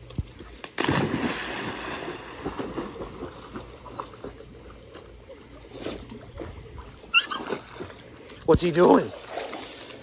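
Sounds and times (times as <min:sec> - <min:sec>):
dog splashing in water: 0:00.7 - 0:04.4, 0:09.0 - 0:10.0.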